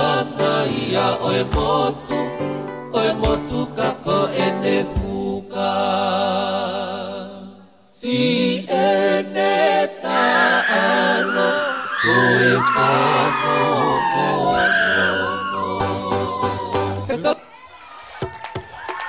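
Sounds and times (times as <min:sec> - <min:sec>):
choir singing in harmony: 0:00.0 - 0:17.2
sharp clapping beats: 0:01.5 - 0:01.8, 0:18.2 - 0:19.0.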